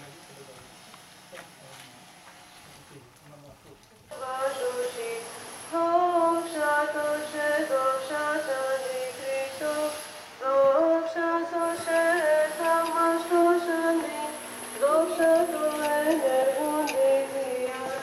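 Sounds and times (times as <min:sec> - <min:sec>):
woman singing slow melody: 0:04.1 - 0:18.0.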